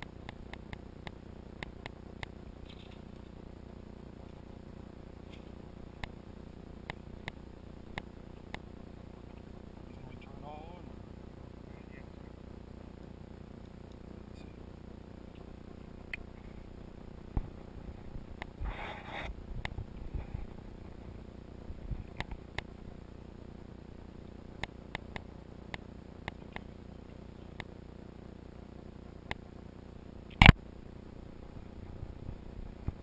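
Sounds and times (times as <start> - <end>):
small clicks: 0.0 - 3.3, 24.6 - 26.7, 30.3 - 30.6.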